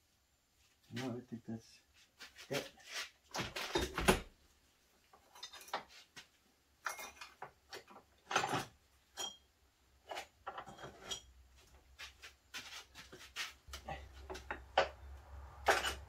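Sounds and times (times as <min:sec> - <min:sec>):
metal parts clinking: 0:15.6 - 0:16.0.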